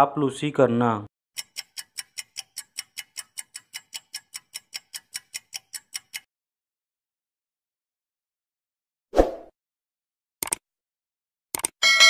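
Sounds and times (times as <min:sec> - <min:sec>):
fast clock-like ticking: 0:01.4 - 0:06.3.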